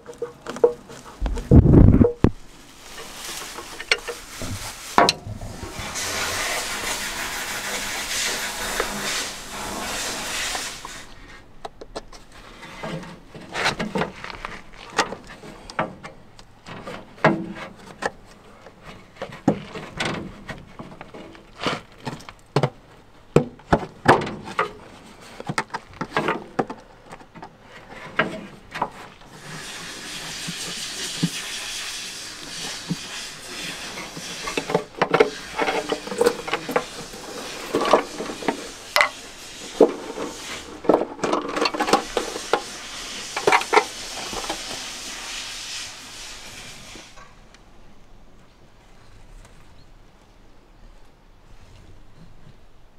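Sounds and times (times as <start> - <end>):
steady hiss: 0.0 - 17.2, 29.0 - 49.3.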